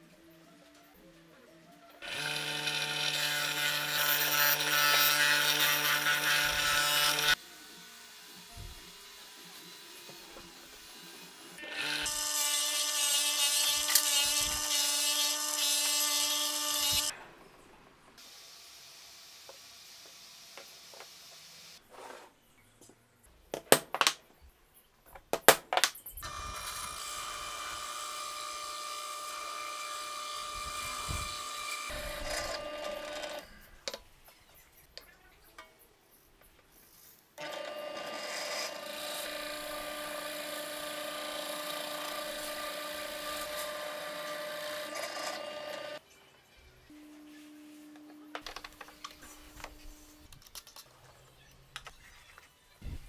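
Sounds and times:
drill press boring into wood: 2.0s - 7.4s, 26.2s - 33.4s, 37.4s - 46.0s
disc sander on wood: 37.4s - 46.0s.

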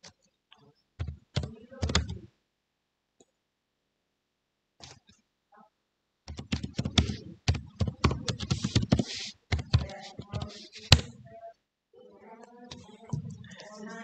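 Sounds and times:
sharp keyboard clack: 1.0s - 2.2s, 6.3s - 11.2s
computer keyboard typing: 1.0s - 2.3s, 6.3s - 11.2s.

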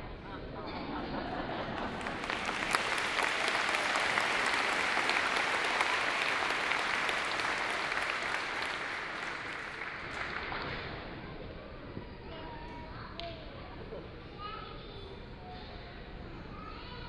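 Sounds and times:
audience applauding: 1.8s - 11.2s.

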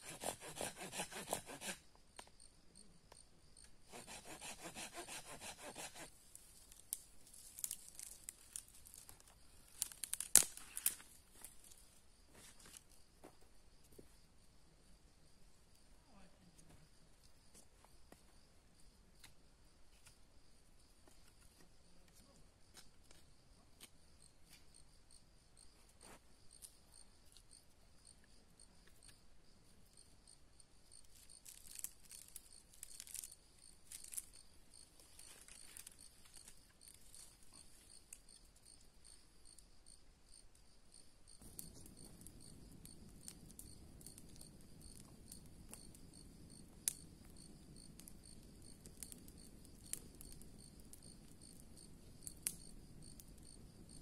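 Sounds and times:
insects trilling: 0.0s - 54.0s
fire crackling: 5.8s - 13.0s, 31.0s - 38.2s, 41.4s - 54.0s
dry sticks snapping: 6.7s - 11.1s.

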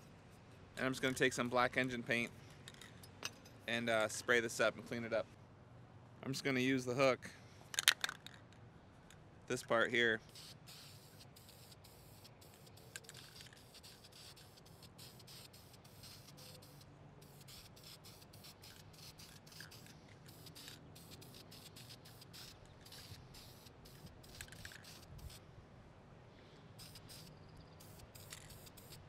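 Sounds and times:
aerosol spray hissing: 10.3s - 25.4s, 26.8s - 29.0s.

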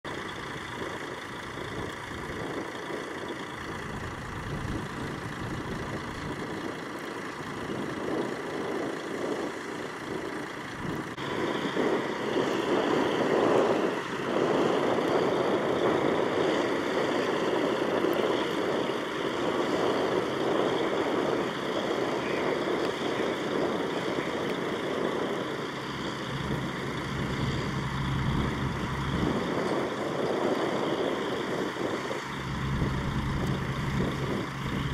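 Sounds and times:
heavy vehicle engines rumbling: 0.1s - 34.9s
low hum: 10.2s - 34.9s.

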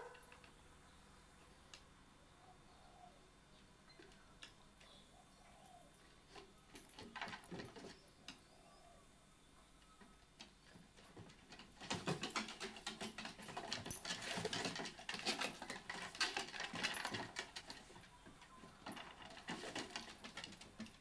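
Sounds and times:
claws clicking on wooden deck: 10.4s - 21.0s.

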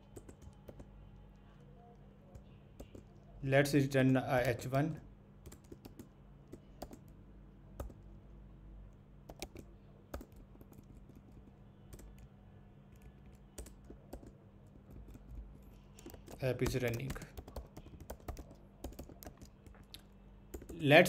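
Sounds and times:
typing on keyboard: 0.0s - 3.2s, 5.4s - 7.2s, 7.8s - 8.0s, 9.3s - 12.3s, 12.9s - 20.8s
low steady hum: 0.0s - 21.0s.

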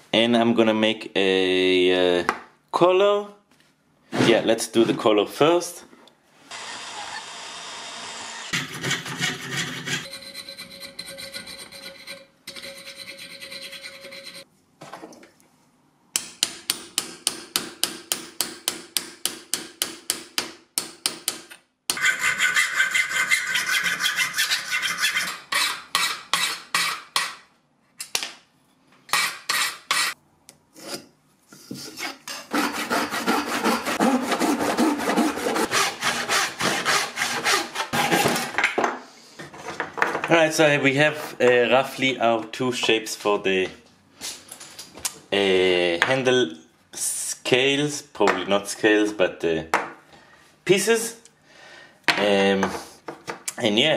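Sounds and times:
drill bit drilling brass: 6.5s - 8.5s
handsaw cutting wood: 6.5s - 12.2s, 21.9s - 27.4s, 31.8s - 38.5s
fine saw cutting brass: 8.1s - 14.4s, 21.9s - 27.4s, 32.0s - 38.2s.

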